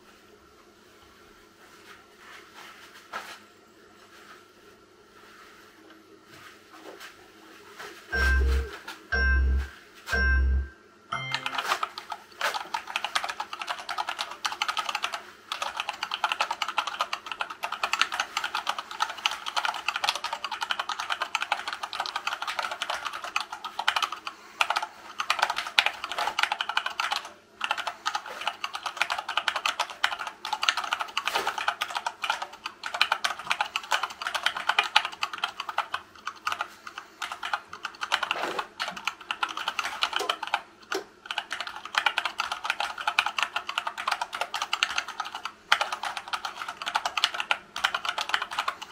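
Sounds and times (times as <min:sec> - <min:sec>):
keyboard typing clacks: 0:08.2 - 0:48.9.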